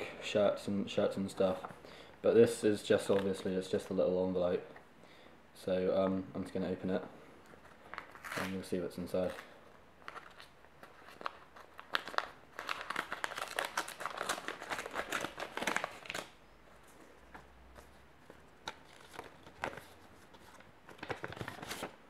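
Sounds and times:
paper rustling: 7.6s - 22.0s
paper envelope tearing and crinkling: 7.9s - 9.4s, 10.0s - 16.4s.

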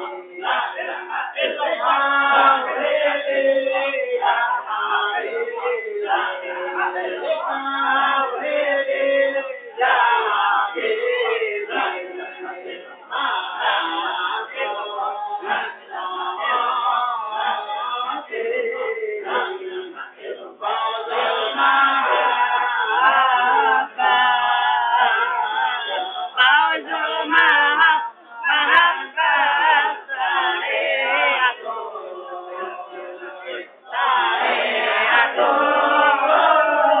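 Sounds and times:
men chanting together: 0.0s - 37.0s.

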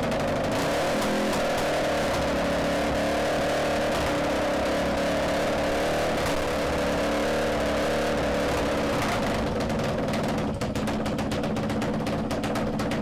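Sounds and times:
motorcycle engine idling: 0.0s - 3.0s, 8.0s - 13.0s.

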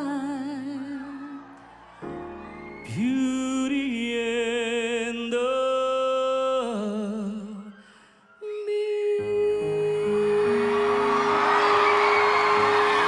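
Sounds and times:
man singing long held note: 8.4s - 13.0s.

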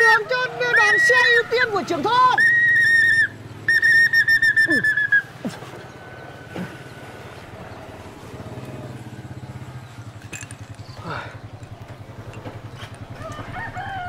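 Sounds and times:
motorcycle engine idling: 0.0s - 14.0s
pea whistle trilling blast: 2.2s - 5.3s.

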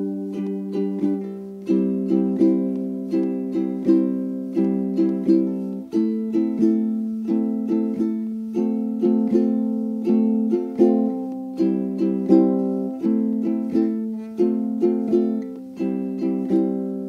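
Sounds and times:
plucked string instrument music: 0.0s - 17.0s.

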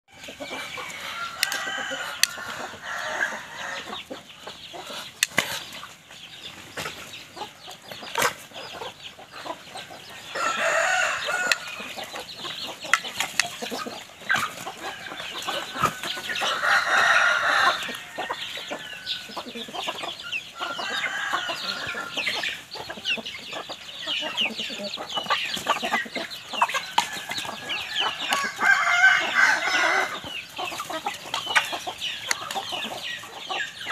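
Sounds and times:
hens clucking: 0.1s - 33.9s
rooster crowing: 0.8s - 3.9s, 10.3s - 11.8s, 16.1s - 19.1s, 20.6s - 22.2s, 27.2s - 30.3s.

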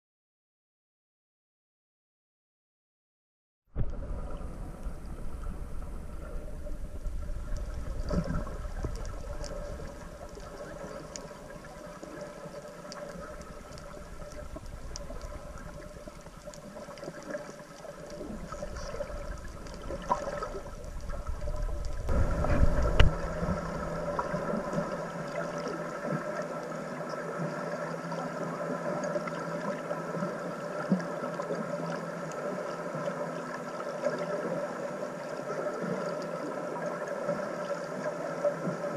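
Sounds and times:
steady multi-tone hum: 3.8s - 38.9s
water rushing underwater: 3.8s - 38.9s.

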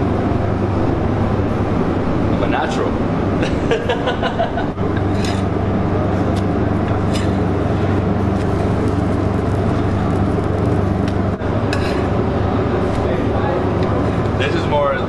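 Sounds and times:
kitchen equipment humming: 0.0s - 15.0s
metal spatula scraping griddle: 5.1s - 5.5s, 11.7s - 12.2s.

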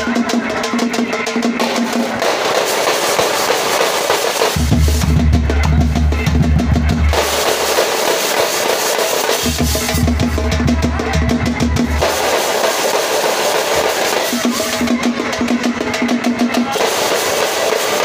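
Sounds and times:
smaller round drums: 0.0s - 18.0s
bass drums: 4.4s - 18.0s.

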